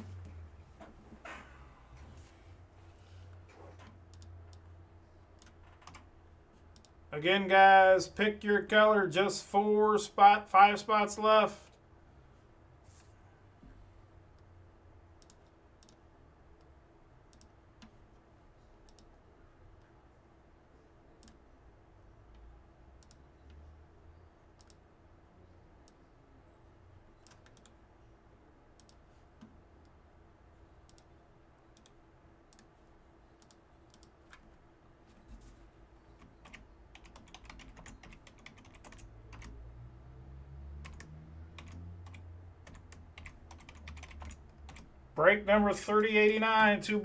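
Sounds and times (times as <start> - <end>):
faint low rising hum: 0.0 - 8.4, 38.6 - 46.9
computer keyboard typing: 5.4 - 6.1, 27.2 - 27.8, 36.2 - 39.6, 40.8 - 44.9.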